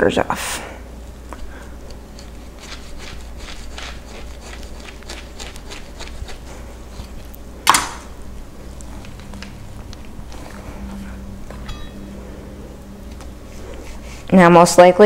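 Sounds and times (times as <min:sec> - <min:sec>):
knife slicing and scraping fruit: 0:01.8 - 0:07.3.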